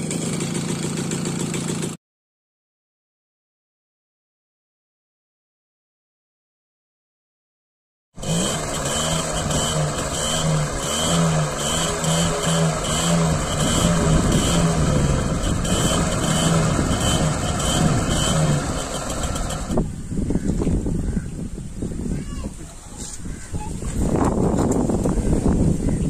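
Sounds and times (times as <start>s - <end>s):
moped engine running: 0.0s - 2.0s, 8.2s - 20.5s.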